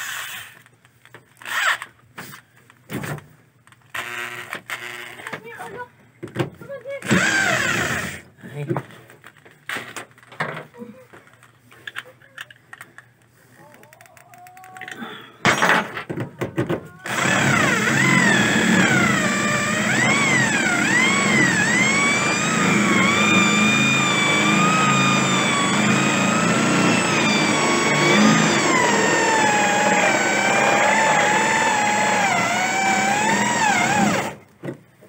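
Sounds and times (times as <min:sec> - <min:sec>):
electric drill boring into sheet metal: 0:03.9 - 0:05.3, 0:07.1 - 0:08.2, 0:17.1 - 0:34.4.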